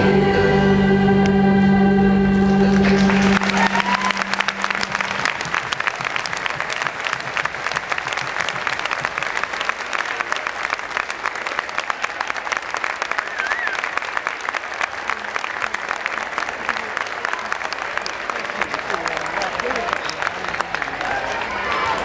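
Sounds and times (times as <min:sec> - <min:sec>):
choir holding a chord: 0:00.0 - 0:05.5
audience applause: 0:02.5 - 0:22.0.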